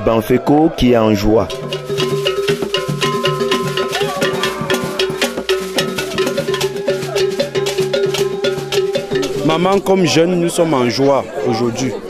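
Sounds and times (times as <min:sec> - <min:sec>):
fast wood-block strikes: 0:01.4 - 0:10.2.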